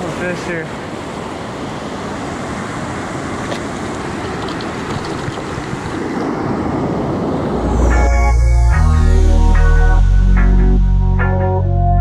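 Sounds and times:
surf washing over sand: 0.0 - 7.8
wind buffeting microphone: 2.4 - 7.8.

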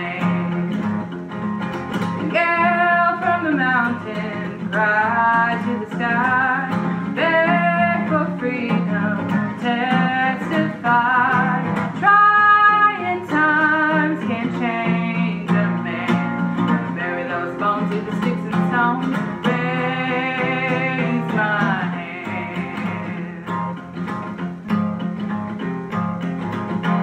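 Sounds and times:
woman singing: 0.0 - 1.2, 1.8 - 24.4
strummed acoustic guitar: 0.0 - 27.0.

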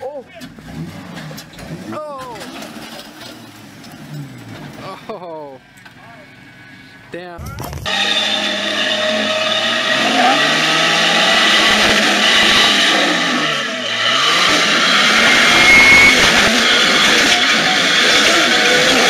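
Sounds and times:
engine revving: 0.4 - 5.1, 7.8 - 19.0.

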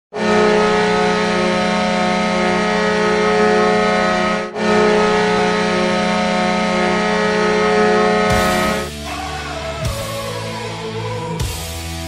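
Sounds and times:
hockey goal horn blast: 0.1 - 8.9.

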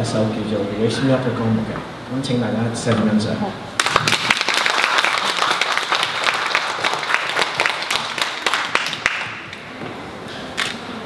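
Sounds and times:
audience applauding: 3.8 - 9.6.

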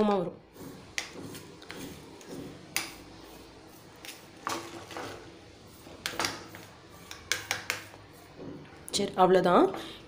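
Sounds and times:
spoon scraping metal tray: 0.5 - 8.4.

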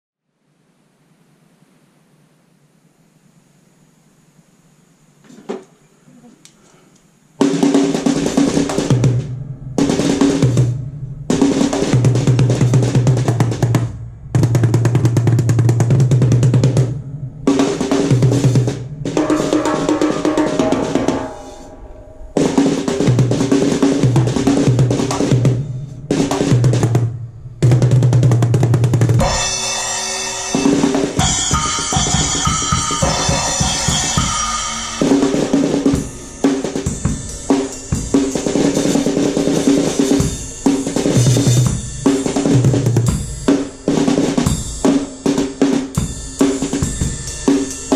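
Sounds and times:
deep pitched bass drum: 8.2 - 29.8
snare drum strokes: 17.5 - 21.7
high ringing bell-like tones: 29.4 - 41.4.

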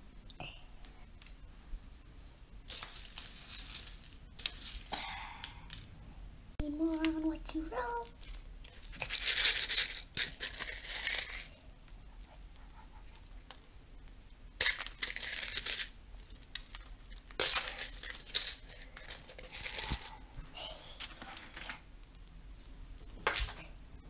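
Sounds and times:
sprinkles rattling: 2.7 - 5.8, 8.2 - 11.6, 14.6 - 20.2
plastic bag crinkling: 2.7 - 5.9, 7.8 - 11.6, 14.6 - 21.8.

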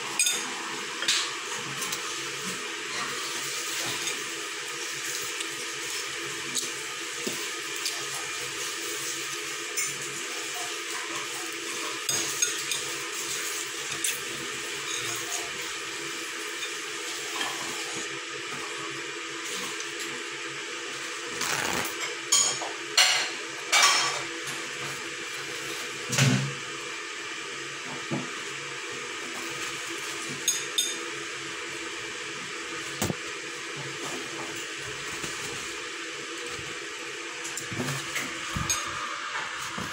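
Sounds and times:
steady background hum: 20.4 - 39.9.

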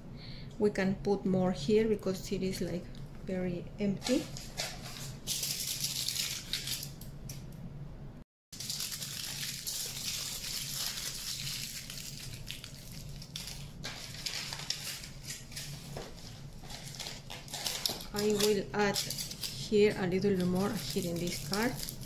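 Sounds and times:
aluminium foil crinkling: 4.0 - 7.1, 8.5 - 22.0.

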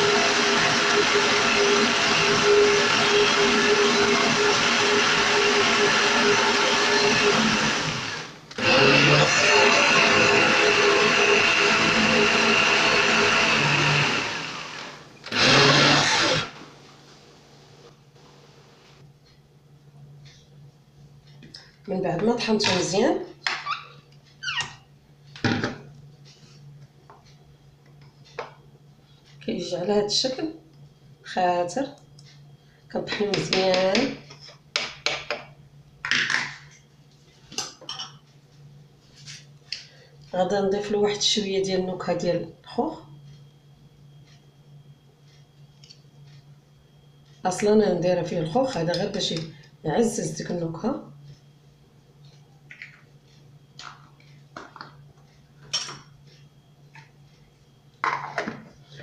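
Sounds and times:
blender running: 0.0 - 16.6.

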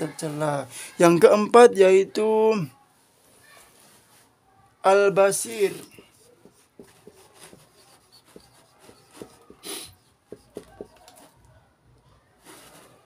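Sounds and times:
marker squeaking on whiteboard: 5.4 - 11.3
marker swishes: 5.5 - 11.1.

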